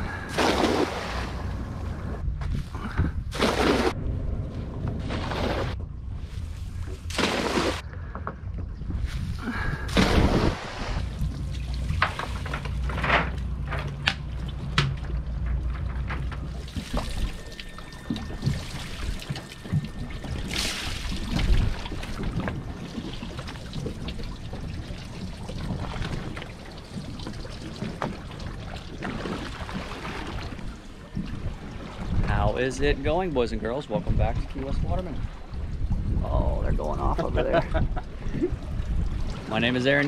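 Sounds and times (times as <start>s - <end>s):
short splashes and knocks: 0.2s - 1.7s, 2.4s - 4.0s, 6.4s - 7.8s, 8.6s - 32.4s
seawater splashing and dripping: 9.6s - 32.3s.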